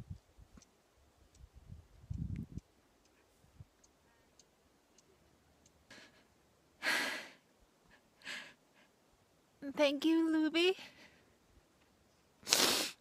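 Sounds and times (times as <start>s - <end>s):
woman breathing: 5.9s - 9.0s, 10.8s - 11.4s.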